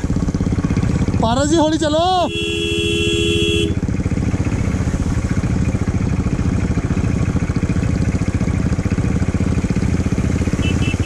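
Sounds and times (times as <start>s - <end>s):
motorcycle engine running: 0.0s - 11.0s
steady horn note: 2.3s - 3.8s.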